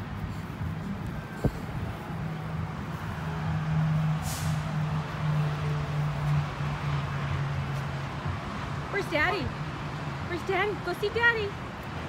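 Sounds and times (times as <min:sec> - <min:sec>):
engine humming: 0:00.0 - 0:12.0
short hiss: 0:04.2 - 0:04.6.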